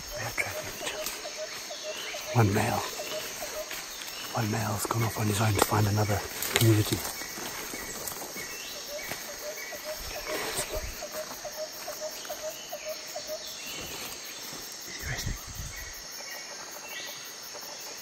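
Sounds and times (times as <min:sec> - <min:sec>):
bird calls: 0:00.0 - 0:18.0
insects droning: 0:00.0 - 0:18.0.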